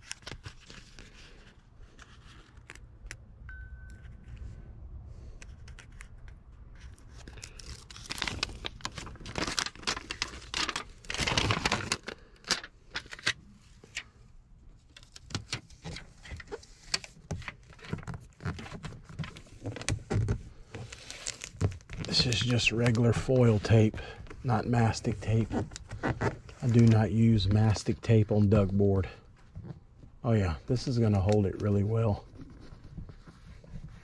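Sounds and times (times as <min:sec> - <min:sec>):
foil tape crinkling and crackling: 0:00.0 - 0:03.2, 0:06.8 - 0:14.0, 0:14.8 - 0:24.0.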